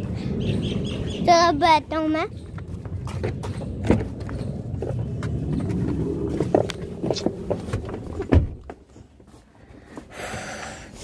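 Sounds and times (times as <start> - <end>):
low rumble: 0.0 - 8.8.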